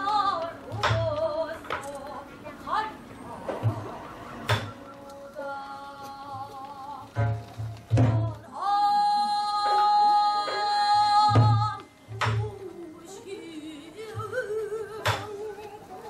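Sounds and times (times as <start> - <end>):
woman singing with vibrato: 0.0 - 16.0
drum strokes: 3.4 - 8.5, 9.6 - 12.8.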